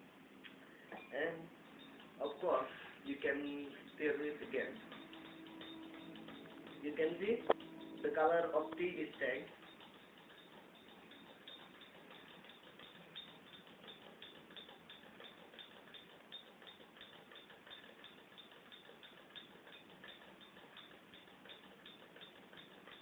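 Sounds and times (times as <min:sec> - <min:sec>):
spoon clinking against glass: 0:03.4 - 0:08.8.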